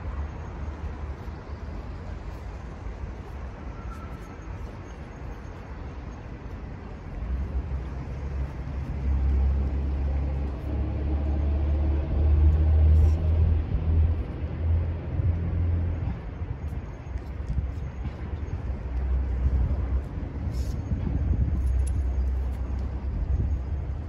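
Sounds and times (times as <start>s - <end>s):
vehicle engine rumble passing: 7.2s - 16.8s.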